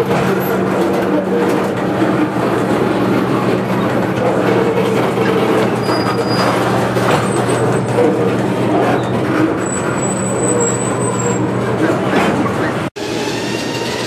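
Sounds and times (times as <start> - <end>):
train wheels rumbling and clacking: 0.0 - 14.0
high-pitched wheel squeals: 5.2 - 14.0.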